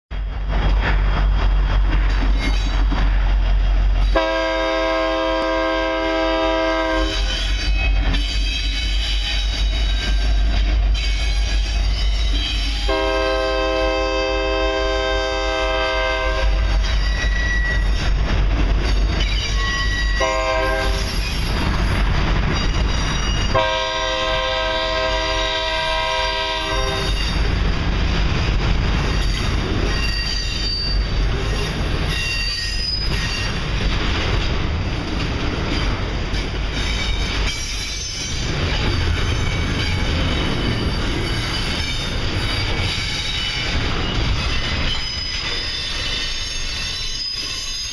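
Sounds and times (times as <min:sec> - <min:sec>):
train rumble and rail clatter: 0:00.0 - 0:47.9
train air horn: 0:04.1 - 0:08.6, 0:12.7 - 0:16.8, 0:20.1 - 0:21.2, 0:23.5 - 0:27.4
faint wheel squeal: 0:44.8 - 0:47.9.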